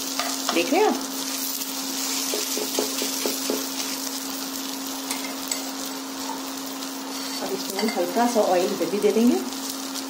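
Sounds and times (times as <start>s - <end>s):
bread sizzling in a pan: 0.0s - 10.0s
cooktop humming: 0.0s - 10.0s.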